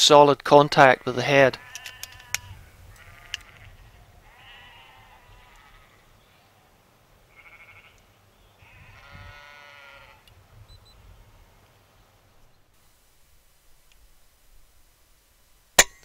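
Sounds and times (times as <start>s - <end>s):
livestock calling: 0.7s - 11.6s.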